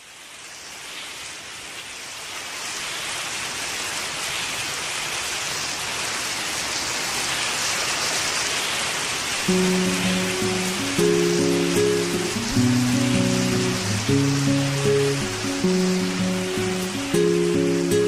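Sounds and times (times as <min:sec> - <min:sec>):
steady rain falling: 0:00.0 - 0:18.0.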